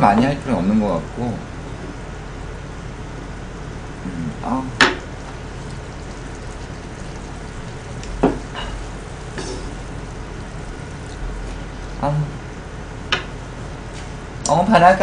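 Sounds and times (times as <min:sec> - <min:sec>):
meat sizzling in a frying pan: 0:04.9 - 0:12.2
spatula knocking on pan: 0:08.2 - 0:11.0.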